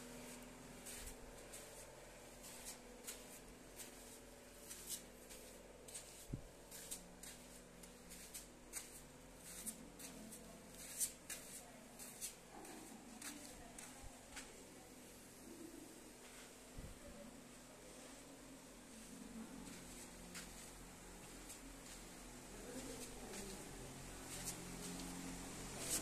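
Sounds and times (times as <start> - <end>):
footsteps scuffing on concrete: 0.2 - 14.6, 19.6 - 25.1.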